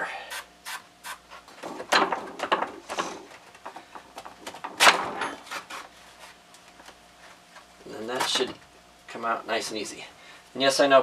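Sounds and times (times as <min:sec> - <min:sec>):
aerosol can spraying: 0:00.3 - 0:01.2.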